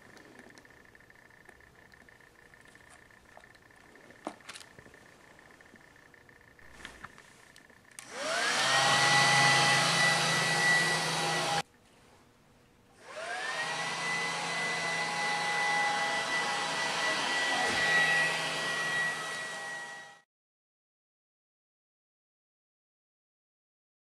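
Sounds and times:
fan motors whining and whirring: 0.0 - 11.7, 13.0 - 20.2.

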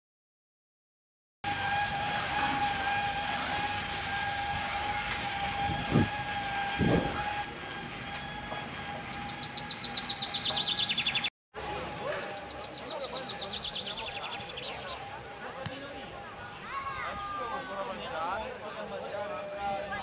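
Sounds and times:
rushing hum of cable machinery: 1.4 - 15.3
mechanical whine: 1.4 - 16.3.

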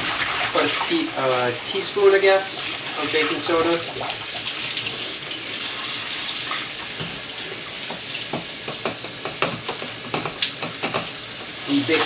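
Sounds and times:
water splashes: 0.0 - 6.8
water running from tap: 0.0 - 12.0.

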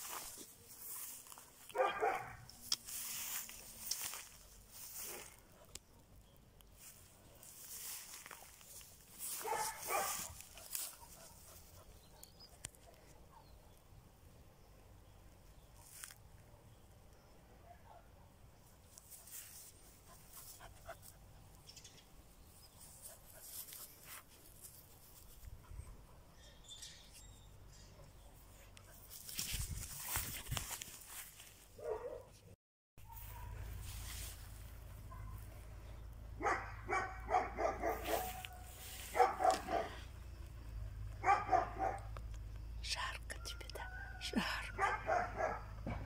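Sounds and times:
dog barking: 1.7 - 2.5, 9.4 - 12.3, 17.6 - 18.4, 31.8 - 32.4, 33.0 - 33.7, 35.1 - 35.4, 36.4 - 40.1, 41.2 - 42.1, 44.7 - 45.9.

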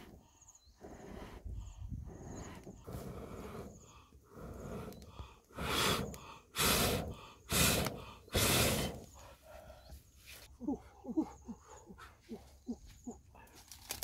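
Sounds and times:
quiet breathing: 0.0 - 13.8
man blowing puffs of breath: 0.9 - 9.8.

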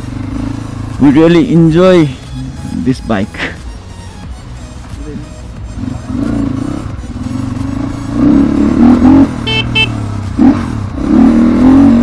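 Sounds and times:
dirt bike engine revving: 0.0 - 1.6, 5.5 - 12.0
horn beeping: 2.2 - 10.2.

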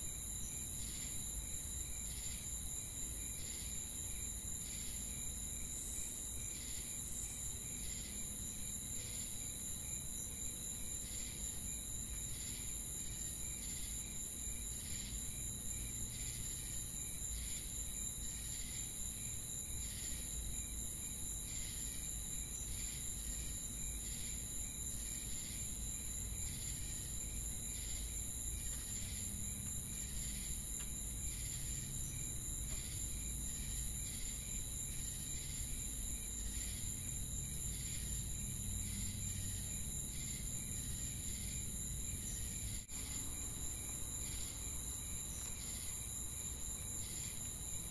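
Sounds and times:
insects buzzing: 0.0 - 47.9
insects chirping: 0.0 - 47.9.

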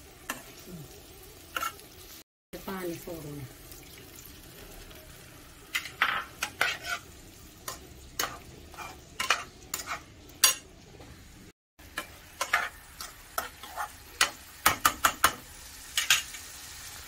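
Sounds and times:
faint sizzle from pan: 0.0 - 17.0
steel spatula scraping pan: 5.8 - 7.1, 8.2 - 10.6.

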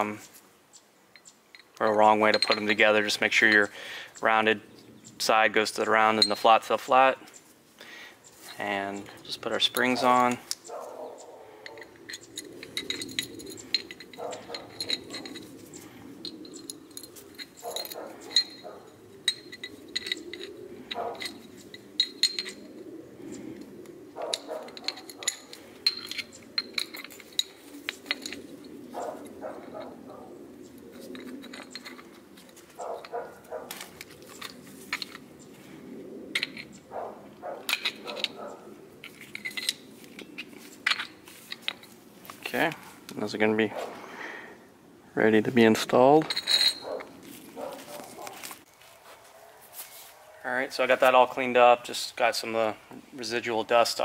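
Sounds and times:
metal springs clicking and clinking: 1.2 - 4.3, 8.4 - 22.7, 23.3 - 35.5, 36.4 - 43.3.

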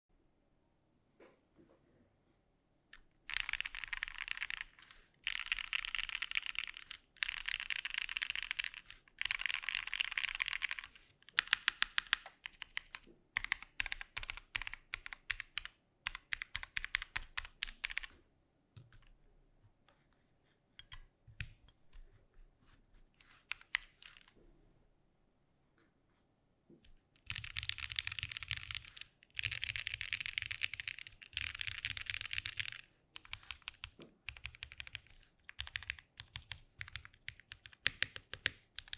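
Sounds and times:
mechanical keyboard typing: 3.0 - 18.2, 23.5 - 24.3, 27.2 - 38.9.

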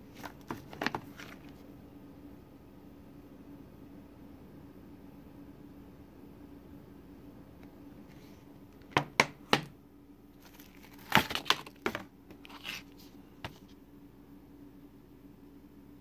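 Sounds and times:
plastic crinkling: 0.0 - 1.6, 10.4 - 13.7
plastic cases clacking: 0.1 - 1.5, 10.4 - 12.8.

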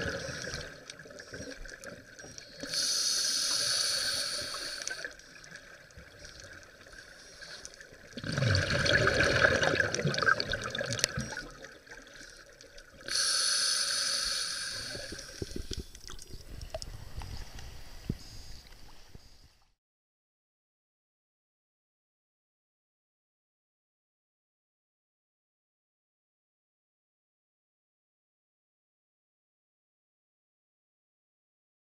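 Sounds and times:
regulator hissing inhale: 0.0 - 5.3, 6.2 - 7.8, 12.1 - 19.6
exhaled air bubbling underwater: 0.0 - 13.3, 13.9 - 18.7.

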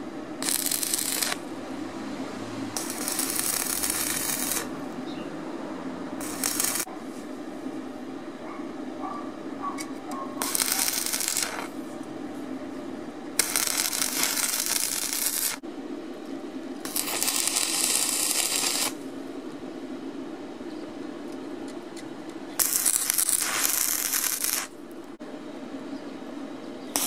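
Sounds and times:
arc welding crackle: 0.0 - 1.5, 2.6 - 5.0, 6.2 - 6.9, 10.3 - 11.8, 13.3 - 15.6, 16.8 - 19.0, 22.6 - 24.9.

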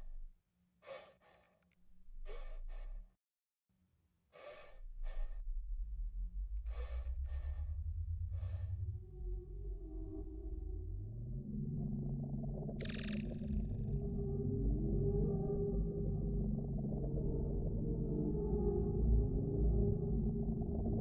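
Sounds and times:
woman breathing heavily: 0.0 - 3.2, 4.3 - 5.6, 6.5 - 9.0
low rumbling drone: 1.9 - 3.1, 4.4 - 21.0.

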